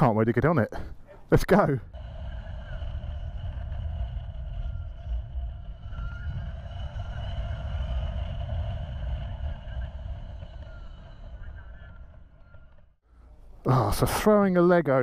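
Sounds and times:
road noise: 0.9s - 13.6s
wind buffeting microphone: 1.8s - 13.0s.

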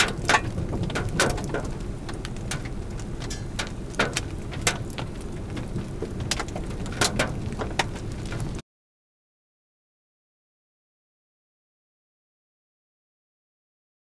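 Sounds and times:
heavy raindrops tapping: 0.0s - 8.6s
low rumble: 0.0s - 8.6s.

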